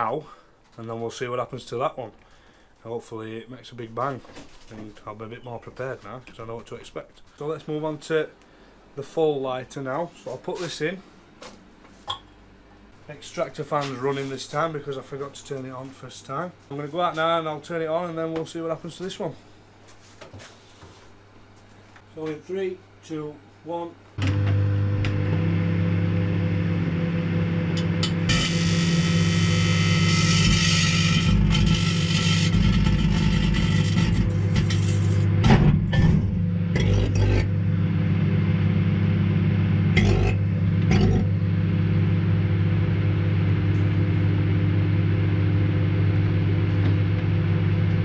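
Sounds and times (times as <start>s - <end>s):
microwave oven hum: 24.2s - 48.0s.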